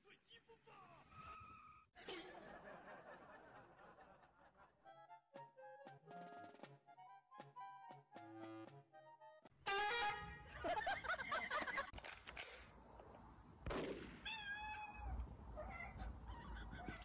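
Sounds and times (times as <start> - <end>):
cat meowing and yowling: 14.2 - 17.0.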